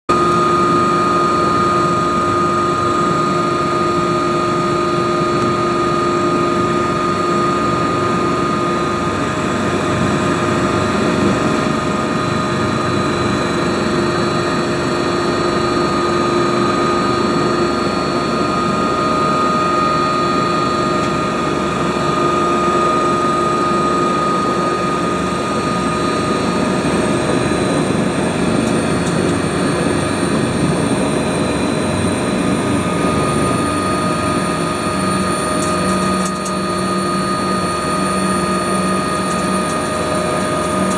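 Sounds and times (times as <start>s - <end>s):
helicopter engines and rotor: 0.1s - 40.9s
thin high whine: 0.1s - 40.9s.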